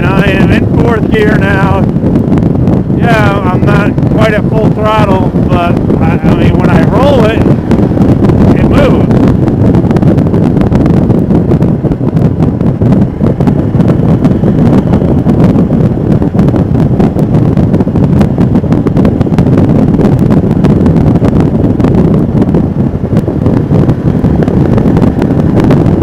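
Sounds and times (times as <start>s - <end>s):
motorcycle engine running: 0.0s - 26.0s
wind buffeting microphone: 0.0s - 26.0s.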